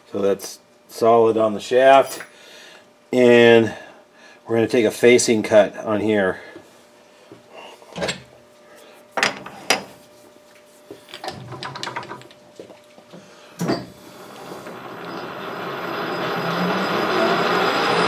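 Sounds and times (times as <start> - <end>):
metal clicks and clunks: 11.2 - 12.4
metal lathe running: 14.1 - 18.0.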